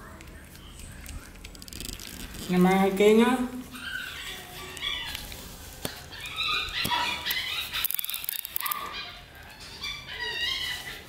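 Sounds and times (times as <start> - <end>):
puppy whining and yelping: 3.7 - 11.0.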